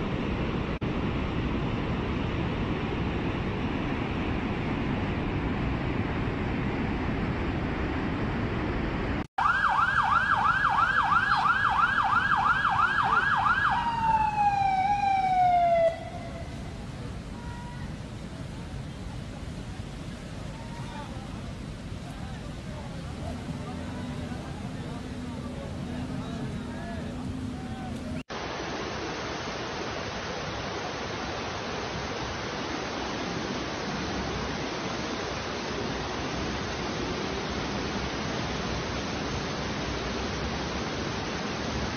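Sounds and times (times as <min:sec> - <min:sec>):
rushing floodwater: 0:00.0 - 0:41.9
emergency siren: 0:09.4 - 0:16.8.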